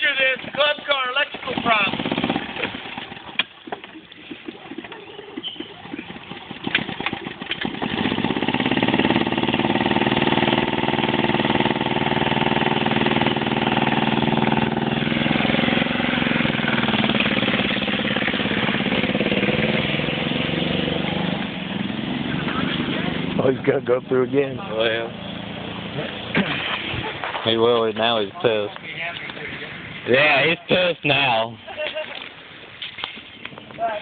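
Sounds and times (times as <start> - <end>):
small engine running hard: 1.4 - 3.2, 5.6 - 27.1.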